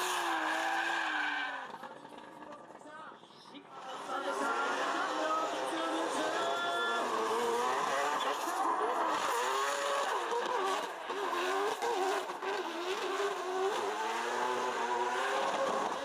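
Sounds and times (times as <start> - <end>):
car engine revving: 3.8 - 16.0.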